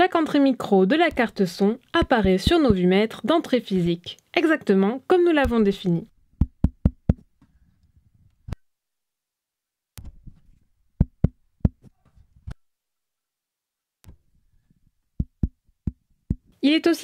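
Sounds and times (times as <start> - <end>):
fingers tapping microphone grille: 1.0 - 2.9, 5.4 - 7.5, 10.0 - 12.6, 14.0 - 16.5.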